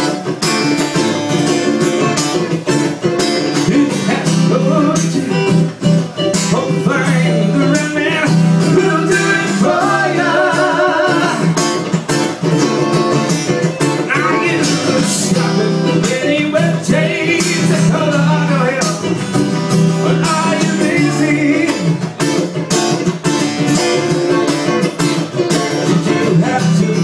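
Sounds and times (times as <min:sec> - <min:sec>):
second guitar: 0:00.0 - 0:27.0
strummed acoustic guitar: 0:00.0 - 0:27.0
man singing: 0:03.3 - 0:11.9, 0:13.9 - 0:22.2, 0:25.7 - 0:27.0.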